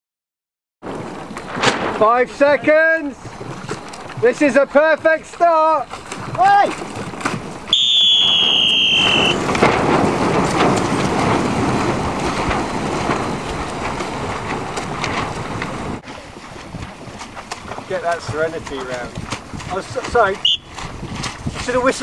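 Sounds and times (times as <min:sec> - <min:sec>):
wind noise on microphone: 0:00.8 - 0:04.4, 0:05.8 - 0:22.0
rushing splashing water: 0:00.8 - 0:22.0
whistle blown: 0:07.7 - 0:09.4, 0:20.4 - 0:20.7.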